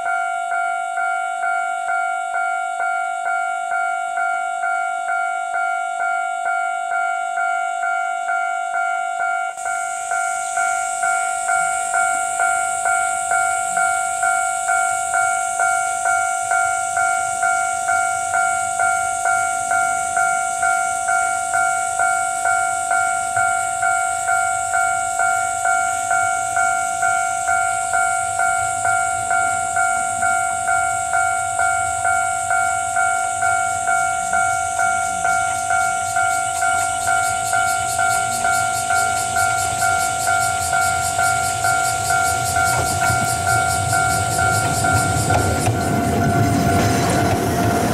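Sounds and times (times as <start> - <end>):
level-crossing alarm ringing: 0.0 - 47.9
train rumbling: 27.4 - 47.9.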